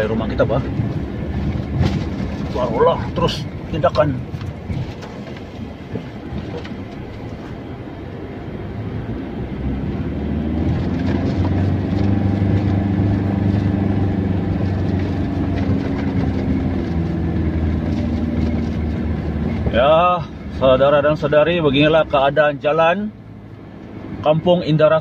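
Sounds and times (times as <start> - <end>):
car engine drone: 0.0 - 25.0
knocks and rattles from bumps: 0.6 - 7.5, 14.6 - 19.0.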